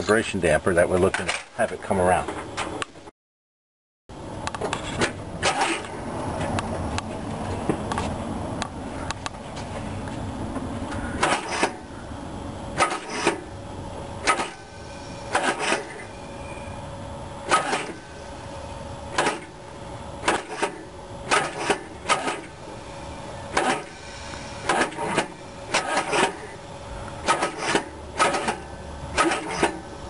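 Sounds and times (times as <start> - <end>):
faint hum: 4.1 - 30.0
sharp metallic clicks: 12.8 - 13.4, 24.6 - 26.5, 27.1 - 29.8.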